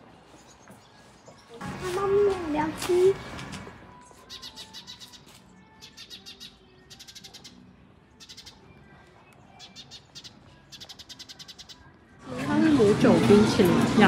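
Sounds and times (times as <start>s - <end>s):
bird chattering: 4.3s - 7.6s, 8.2s - 8.6s, 9.6s - 11.9s.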